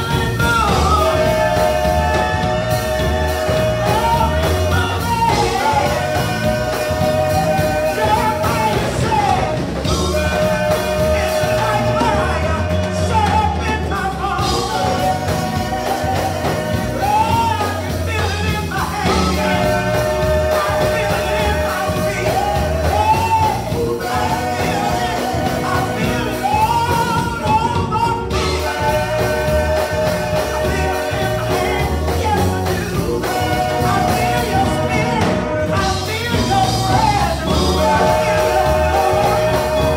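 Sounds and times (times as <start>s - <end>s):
group singing gospel song: 0.0s - 39.9s
instrumental backing with bass and beat: 0.0s - 39.9s.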